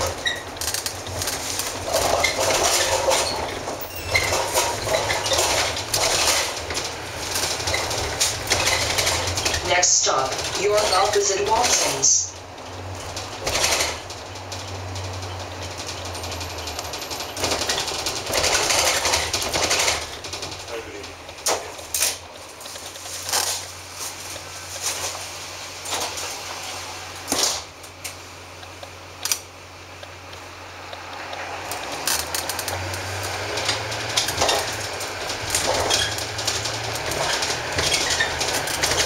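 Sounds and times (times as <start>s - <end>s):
sharp clicks and knocks: 0.0s - 25.3s, 27.3s - 39.0s
bus body rattling: 0.0s - 39.0s
diesel bus engine: 0.0s - 39.0s.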